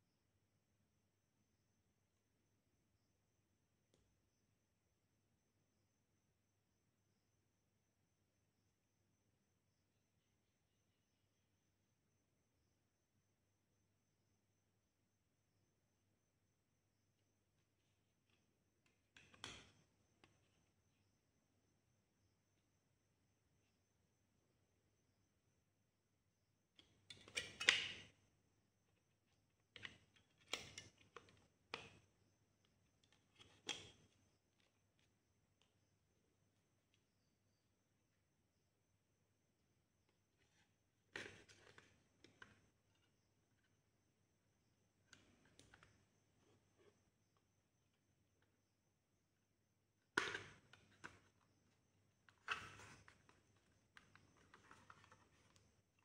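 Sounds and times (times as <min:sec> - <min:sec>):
plastic clicks and knocks: 0:50.2 - 0:51.4.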